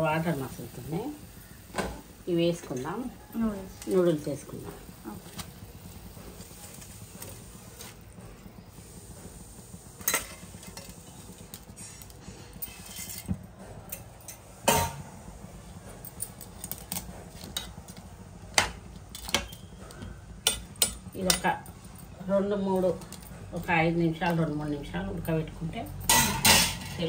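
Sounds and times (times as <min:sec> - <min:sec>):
metal tongs clinking on a pot: 0:02.6 - 0:03.1, 0:20.4 - 0:21.7, 0:25.1 - 0:27.0.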